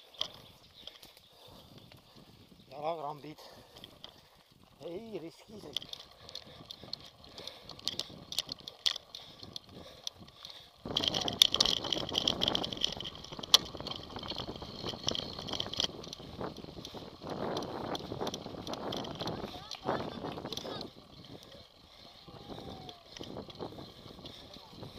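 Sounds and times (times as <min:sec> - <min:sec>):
bike tyres on dirt trail: 0:00.0 - 0:24.9.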